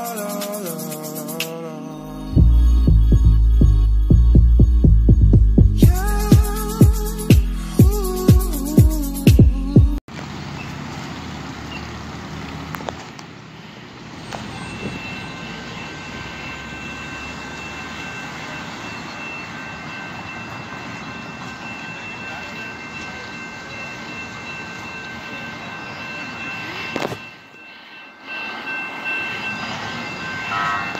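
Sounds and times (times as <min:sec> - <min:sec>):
railroad crossing bell ringing: 0:00.0 - 0:02.9, 0:05.8 - 0:08.6, 0:14.2 - 0:30.9
street traffic: 0:00.0 - 0:30.9.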